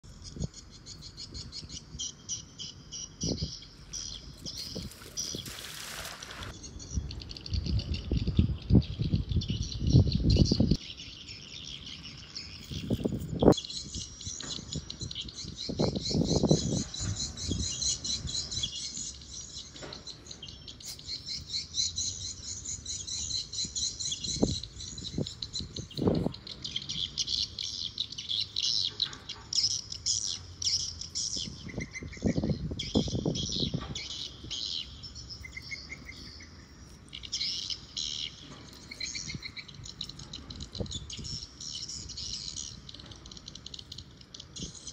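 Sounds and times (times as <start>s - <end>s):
small birds chirping: 0.0s - 44.9s
wind buffeting microphone: 3.1s - 10.8s, 12.4s - 18.8s, 23.3s - 27.1s, 31.2s - 35.3s, 39.0s - 42.8s.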